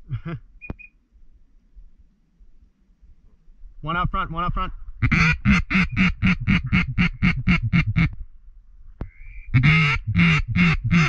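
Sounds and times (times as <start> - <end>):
duck call quacks: 5.0 - 8.1, 9.5 - 11.0.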